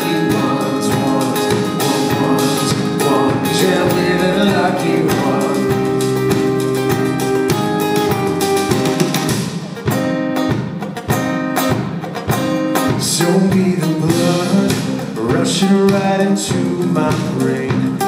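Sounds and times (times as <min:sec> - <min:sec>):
man singing: 0:00.0 - 0:06.6, 0:12.9 - 0:18.0
guitar picking notes: 0:00.0 - 0:17.6.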